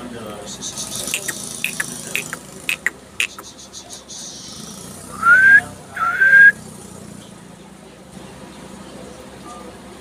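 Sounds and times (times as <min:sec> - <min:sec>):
rising whistles: 0:05.2 - 0:06.6.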